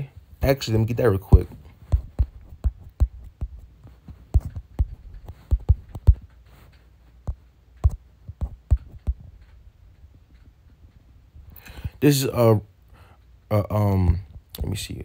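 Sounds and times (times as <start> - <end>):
faint low hum: 0.0 - 15.0
soft knocks and taps: 1.3 - 9.6.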